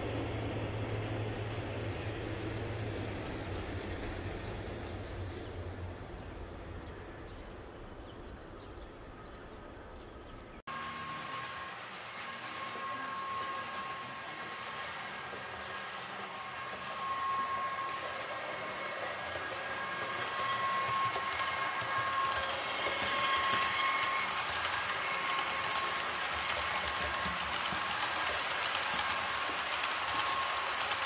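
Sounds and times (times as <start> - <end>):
electric train whine: 0.0 - 31.0
clicking rail noise: 10.4 - 31.0.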